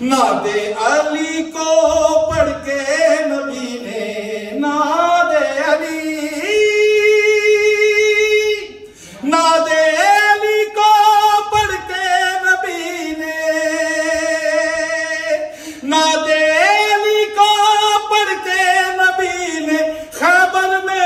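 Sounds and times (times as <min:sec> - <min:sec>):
man singing ornamented phrases: 0:00.0 - 0:21.0.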